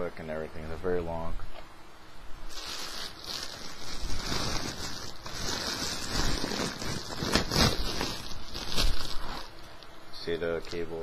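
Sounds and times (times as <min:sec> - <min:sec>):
plastic bag crinkling: 0:02.5 - 0:09.8.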